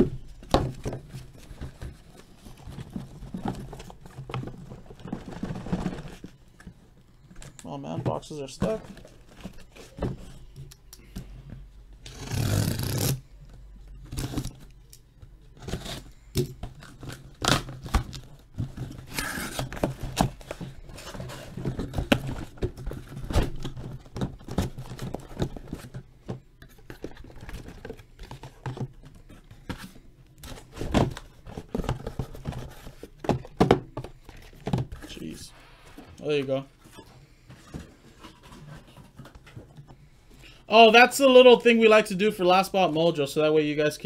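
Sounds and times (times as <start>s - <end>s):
boxes thumping: 0.0s - 6.7s, 7.9s - 10.4s, 15.7s - 35.4s.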